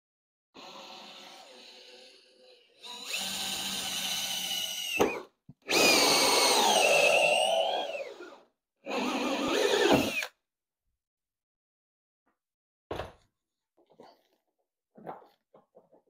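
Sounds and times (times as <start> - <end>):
cordless drill with hole saw: 0.6 - 10.4.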